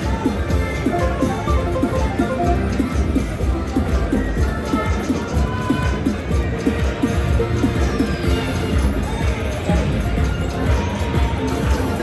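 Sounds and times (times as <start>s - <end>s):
electronic slot machine music: 0.0s - 5.3s.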